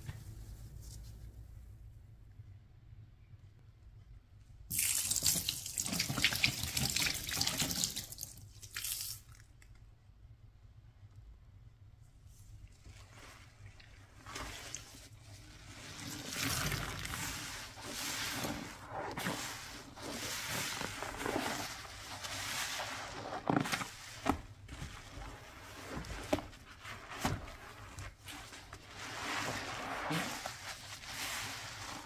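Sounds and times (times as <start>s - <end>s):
water swishing and splashing: 12.7s - 32.0s.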